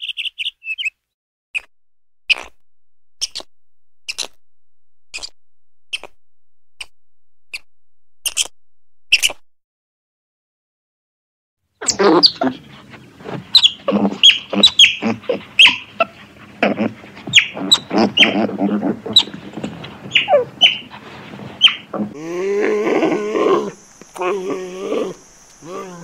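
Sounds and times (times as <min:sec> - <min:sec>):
otters chirping and squeaking: 0:02.3 - 0:02.6, 0:03.2 - 0:04.4, 0:05.1 - 0:06.2, 0:07.5 - 0:08.5, 0:09.1 - 0:09.4, 0:13.4 - 0:20.9, 0:21.6 - 0:22.1.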